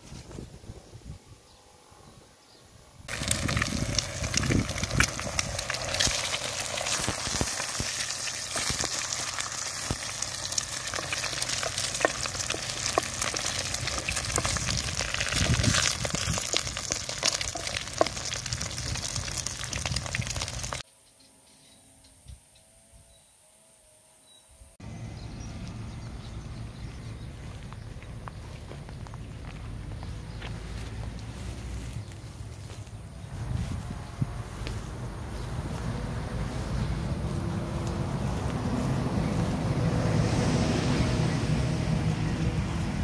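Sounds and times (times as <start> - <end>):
food sizzling in hot oil: 3.1 - 20.8
sharp popping of oil: 3.1 - 20.8.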